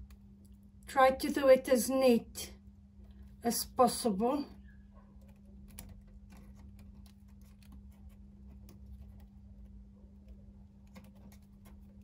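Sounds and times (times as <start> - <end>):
wire ticks and clicks: 4.6 - 12.0.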